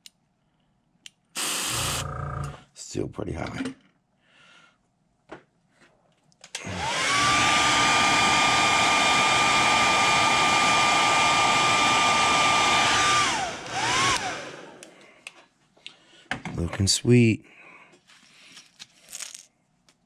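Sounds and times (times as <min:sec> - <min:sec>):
hair dryer motor whine: 0:01.4 - 0:02.0, 0:06.6 - 0:14.9.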